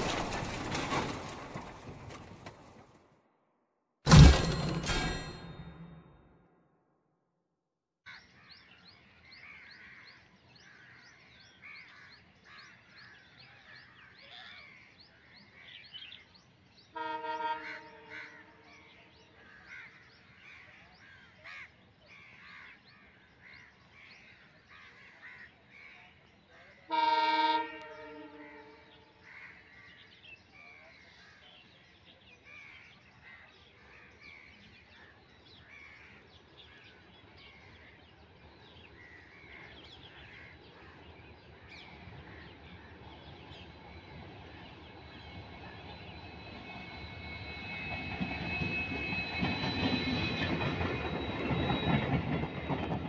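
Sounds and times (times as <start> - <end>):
birds calling: 8.1 - 53.0
locomotive horn: 16.9 - 18.7, 26.9 - 29.1.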